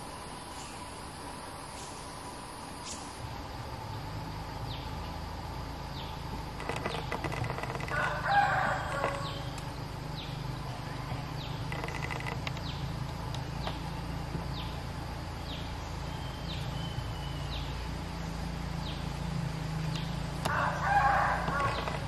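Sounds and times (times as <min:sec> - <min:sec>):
bird song phrase: 0:08.5 - 0:22.0.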